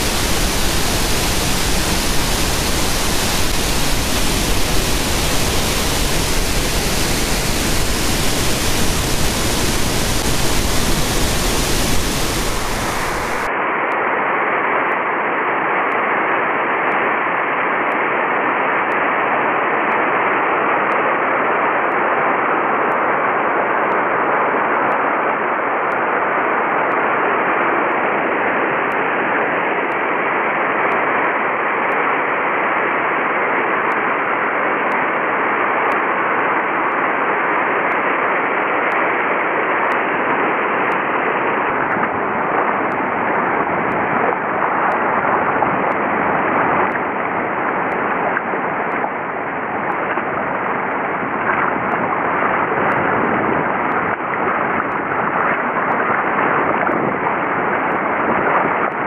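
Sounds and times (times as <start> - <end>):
waterfall rushing: 0.0 - 13.5.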